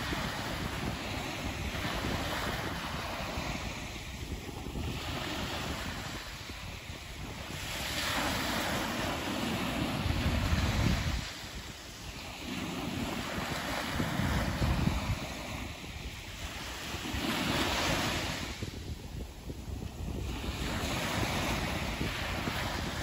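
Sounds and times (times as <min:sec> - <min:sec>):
surf washing up beach: 0:00.0 - 0:23.0
wind on microphone: 0:00.0 - 0:23.0.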